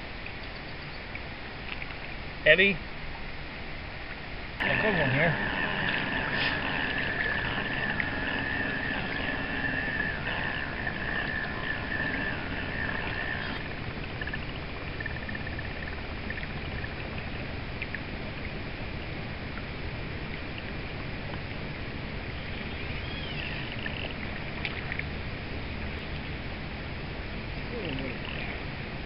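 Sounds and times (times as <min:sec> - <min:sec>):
stream water rushing: 0:04.4 - 0:29.0
faint high chirping: 0:22.3 - 0:24.1.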